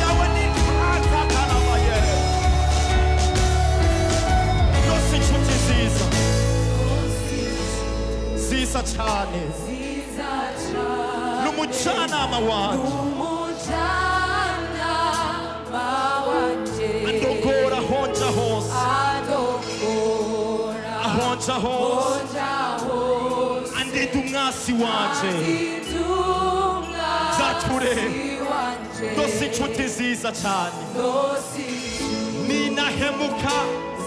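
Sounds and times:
long held bass notes: 0.0s - 10.1s
man singing lead vocals: 0.0s - 10.2s, 11.2s - 13.7s, 17.0s - 22.6s, 23.6s - 26.0s, 27.2s - 34.0s
backing choir singing: 0.0s - 34.0s
band playing: 0.0s - 34.0s.

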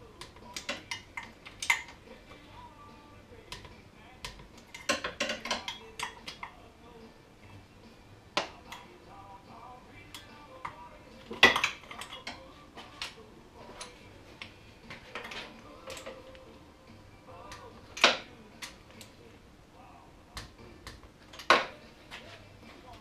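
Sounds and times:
tools clinking against metal: 0.4s - 2.0s, 3.5s - 6.6s, 10.1s - 14.0s.

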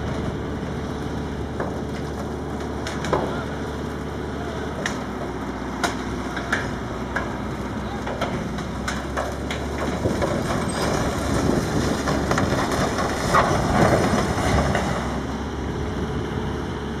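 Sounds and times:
sheet metal creaking and crumpling: 8.3s - 15.1s.

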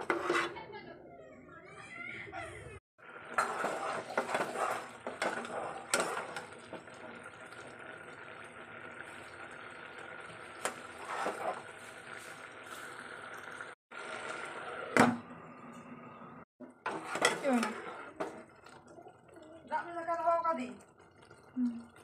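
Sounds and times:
metal spatula scraping metal pot: 0.0s - 0.7s, 3.3s - 6.9s, 10.6s - 11.7s, 16.8s - 18.4s.

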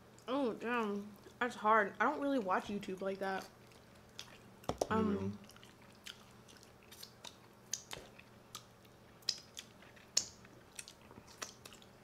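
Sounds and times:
people chewing: 3.4s - 12.0s.

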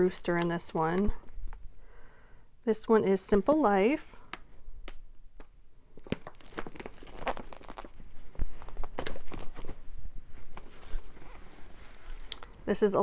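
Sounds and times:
plastic packaging crinkling: 6.0s - 9.8s, 10.4s - 12.6s.

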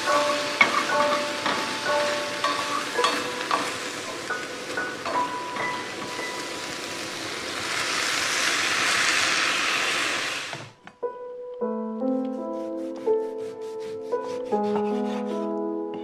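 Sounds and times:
gentle music with bell-like notes: 0.0s - 6.8s, 14.6s - 16.0s
onions sizzling in a skillet: 0.0s - 10.7s.

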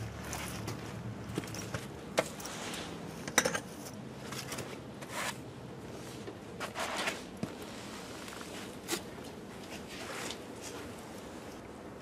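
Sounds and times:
wire rustling scrapes: 2.4s - 3.1s, 6.0s - 9.1s.

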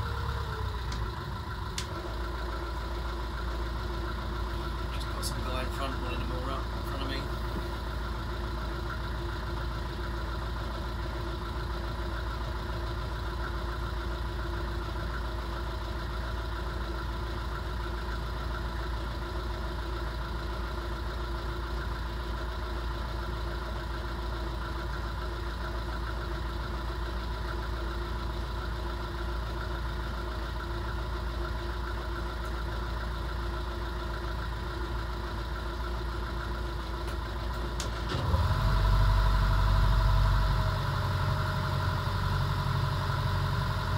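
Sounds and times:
boat engine running: 0.0s - 9.9s.

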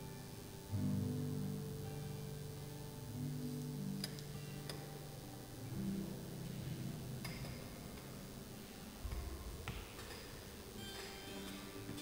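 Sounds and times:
instrumental music of held chords: 0.0s - 9.0s.

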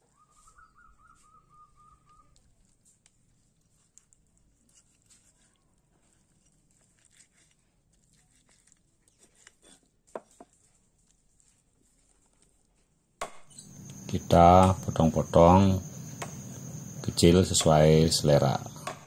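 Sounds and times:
cleaver scraping meat off bone: 2.3s - 12.6s.

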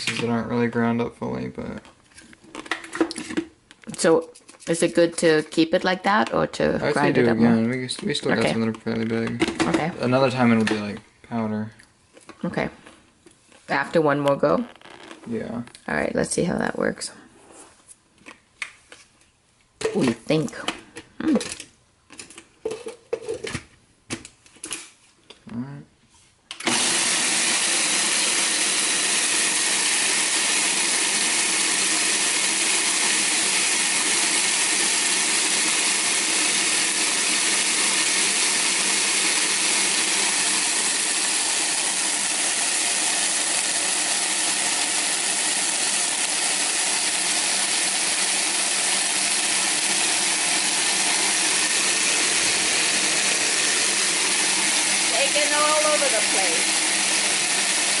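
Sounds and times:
blender motor running: 6.8s - 8.7s, 26.6s - 58.0s.

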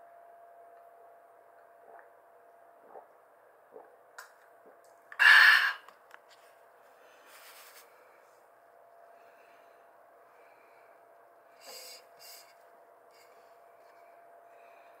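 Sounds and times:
faint steady hum: 0.0s - 15.0s
soft rustle: 6.3s - 8.1s.

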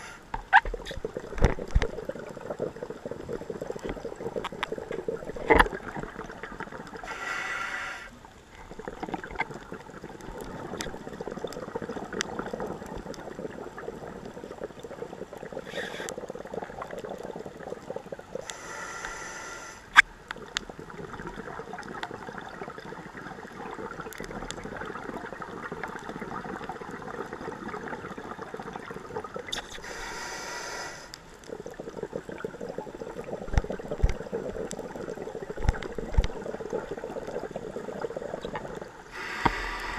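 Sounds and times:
underwater noise: 0.0s - 39.9s
diver breathing through regulator: 7.0s - 8.1s, 18.4s - 19.9s, 29.8s - 31.2s, 39.1s - 39.9s.

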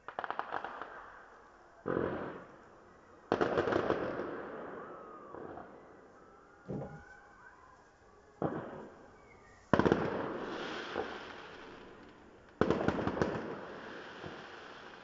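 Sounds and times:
firework crackle: 0.0s - 5.0s, 8.4s - 15.0s
firework bangs: 9.7s - 15.0s.

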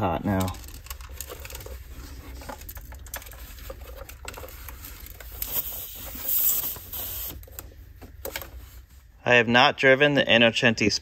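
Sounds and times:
clicks and rattles of handling: 0.2s - 5.5s
short air hiss: 5.4s - 7.4s.

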